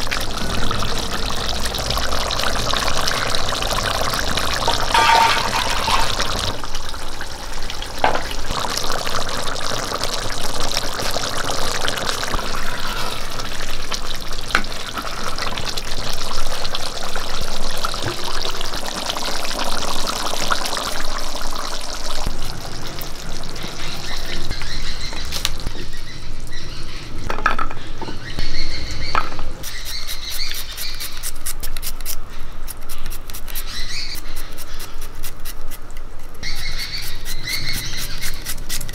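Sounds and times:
curry bubbling in pot: 0:00.0 - 0:26.9.

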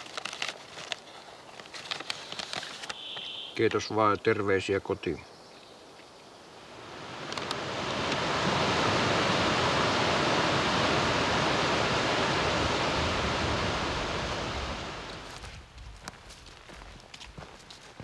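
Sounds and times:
flowing water rushing: 0:06.6 - 0:15.3.

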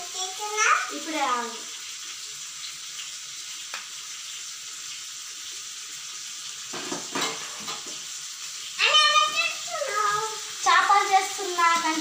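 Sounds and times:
fish sizzling in oil: 0:00.0 - 0:12.0
pan scraping and knocking: 0:06.7 - 0:08.0.

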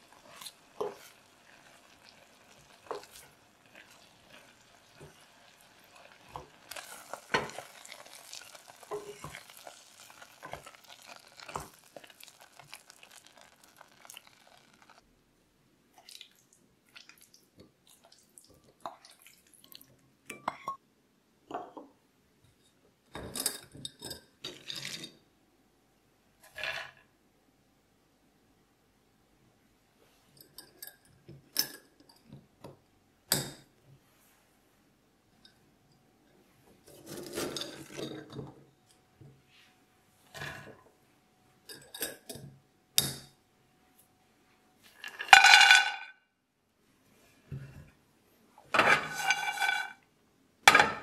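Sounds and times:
nuts clattering into metal pan: 0:06.3 - 0:15.0, 0:45.0 - 0:46.1.

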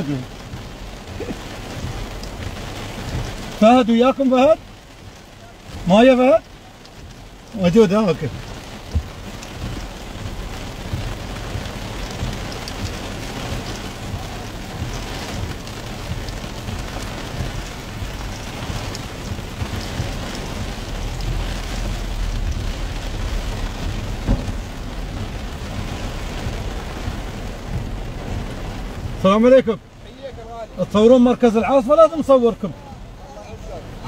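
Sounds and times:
heavy rain on a car roof: 0:00.0 - 0:34.0
low rumble: 0:08.3 - 0:31.0.

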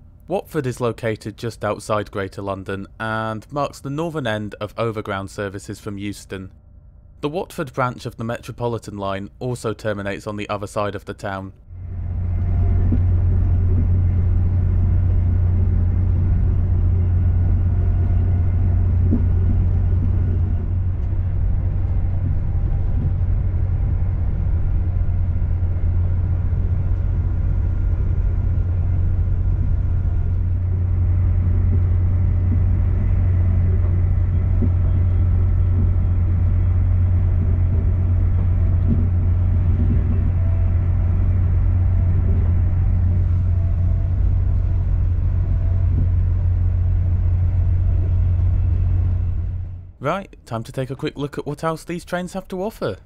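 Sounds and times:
diesel engine drone: 0:00.0 - 0:53.0
train wheels rumbling on track: 0:11.9 - 0:49.8.

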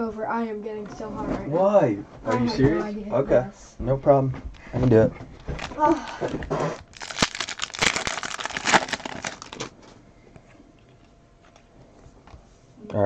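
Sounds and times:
foil wrapper tearing and crinkling: 0:05.6 - 0:09.7.

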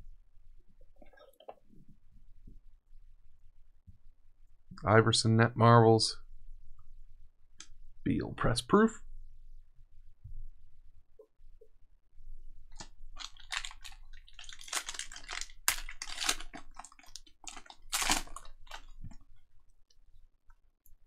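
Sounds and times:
foil wrapper crinkling and tearing: 0:12.8 - 0:19.2.

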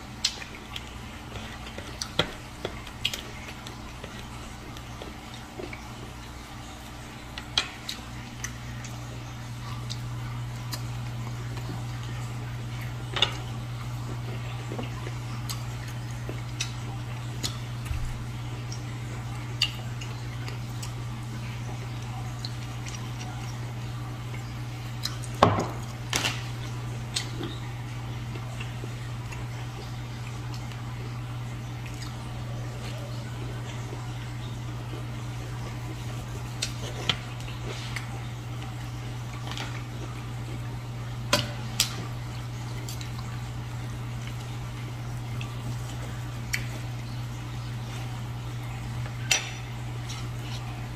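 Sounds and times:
steady low hum: 0:00.0 - 0:50.9.

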